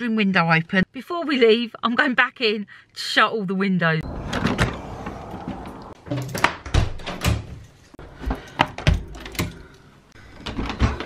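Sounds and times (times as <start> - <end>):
windows closing with thunks: 4.0 - 7.6.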